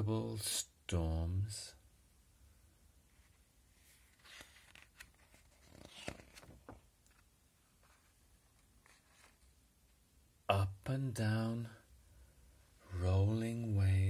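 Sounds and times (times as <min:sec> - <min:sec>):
paper rustling: 0:03.2 - 0:09.6
soft page clicks: 0:04.1 - 0:07.3.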